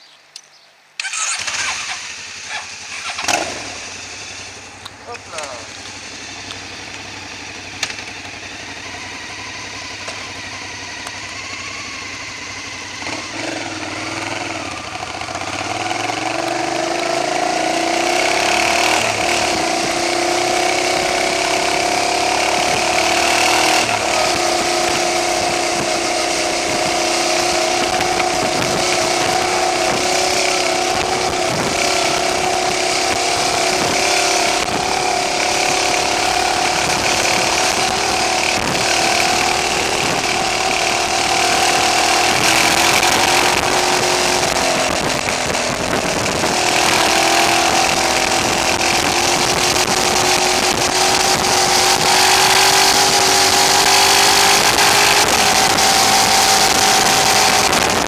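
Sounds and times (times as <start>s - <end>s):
motorcycle engine accelerating: 1.0s - 58.0s
loud rushing wind noise: 13.9s - 58.0s.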